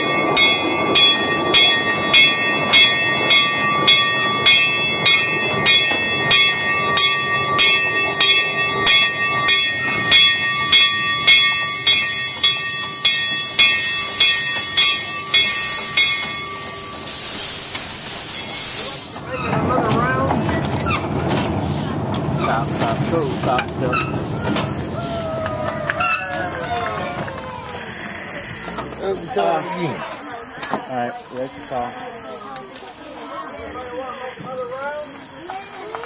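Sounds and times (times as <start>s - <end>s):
locomotive bell ringing: 0.0s - 21.2s, 22.0s - 27.0s
steam hiss: 11.4s - 20.5s, 27.6s - 36.0s.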